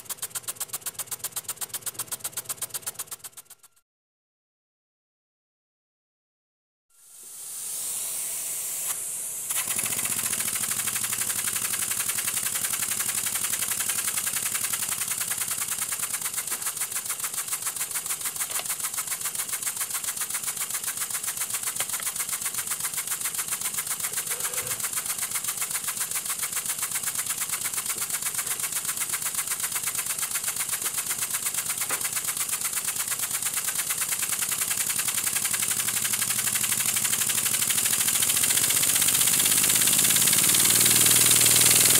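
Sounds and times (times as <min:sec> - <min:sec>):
model steam engine puffing: 0:08.8 - 0:34.3.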